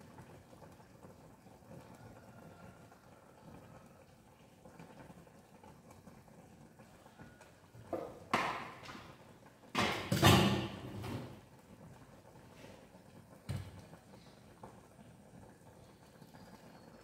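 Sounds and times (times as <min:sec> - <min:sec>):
bottles knocking on shelf: 0:07.9 - 0:09.0.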